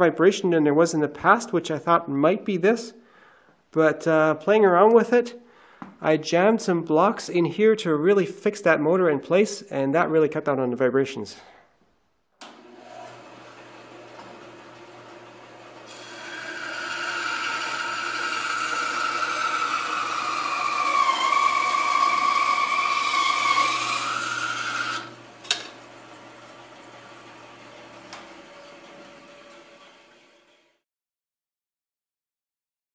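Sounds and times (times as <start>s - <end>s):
bandsaw running hum: 12.4s - 30.8s
saw blade cutting whine: 15.9s - 25.6s.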